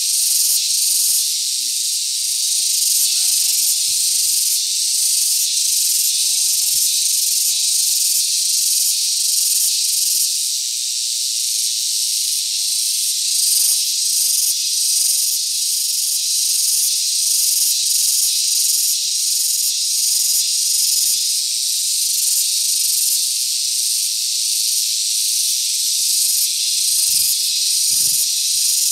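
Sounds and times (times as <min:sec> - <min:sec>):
insect chorus buzzing: 0:00.0 - 0:28.9.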